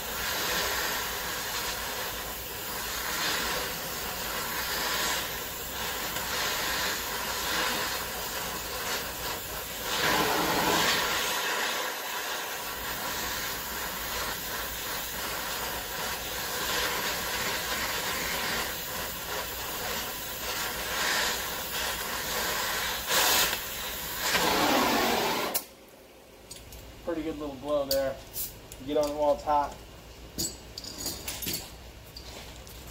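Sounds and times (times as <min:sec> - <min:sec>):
gas torch flame hissing: 0:00.0 - 0:25.7.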